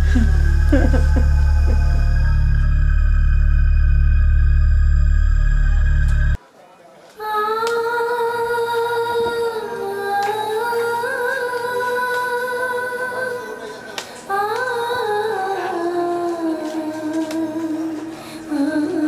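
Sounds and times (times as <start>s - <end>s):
faint low drone: 0.0s - 6.4s
slow vocal melody: 0.0s - 6.4s, 7.2s - 19.0s.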